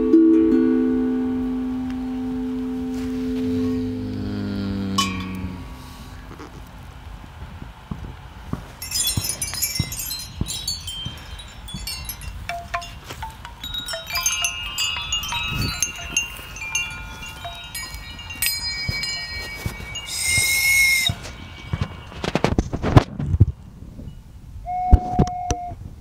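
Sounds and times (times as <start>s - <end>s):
metal chimes ringing: 0.0s - 6.3s, 8.6s - 24.4s
breathy blown note: 1.7s - 6.4s.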